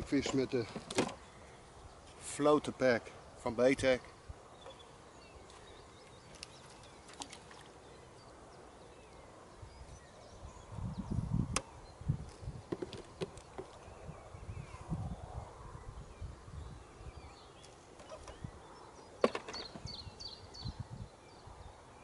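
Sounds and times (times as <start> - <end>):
faint outdoor background: 0.0 - 22.0.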